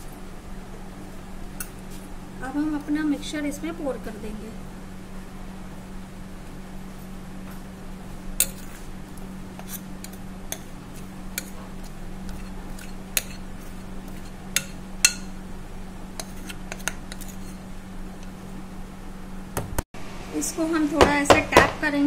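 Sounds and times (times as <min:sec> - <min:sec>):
steady low hum: 0:00.0 - 0:22.0
utensil clinking against bowl: 0:14.1 - 0:15.4.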